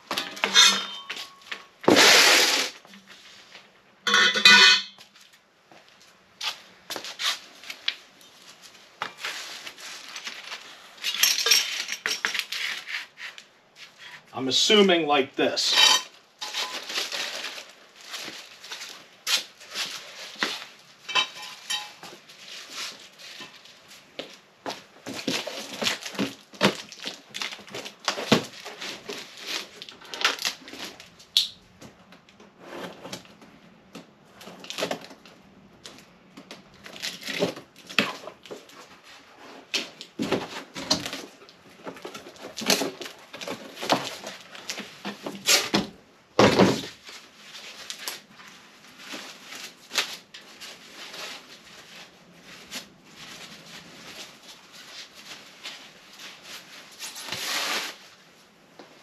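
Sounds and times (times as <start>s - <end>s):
metal pipes knocking and clinking: 0.0s - 1.5s, 4.1s - 5.0s, 21.1s - 22.0s.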